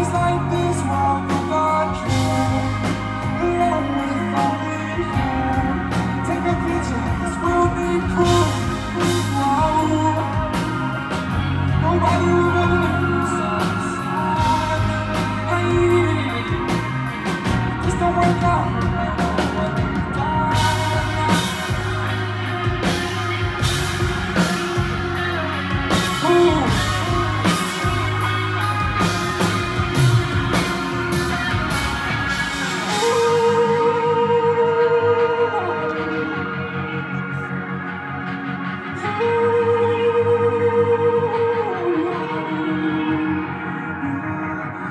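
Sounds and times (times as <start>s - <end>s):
heavy bass beat: 0.0s - 33.9s
live hip-hop music: 0.0s - 44.9s
vocals: 0.0s - 44.9s.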